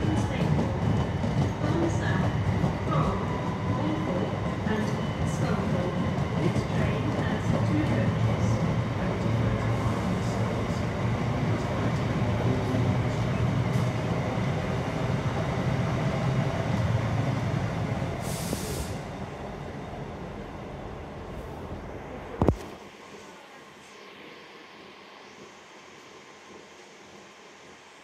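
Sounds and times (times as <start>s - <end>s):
short hiss: 18.2s - 19.0s.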